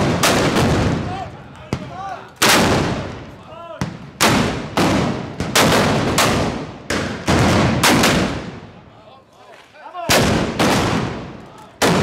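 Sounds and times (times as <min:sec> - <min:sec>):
loud gunshots with echo: 0:00.0 - 0:08.7, 0:10.1 - 0:12.0
faint shouting voices: 0:01.0 - 0:02.4, 0:03.2 - 0:04.0, 0:08.8 - 0:10.2.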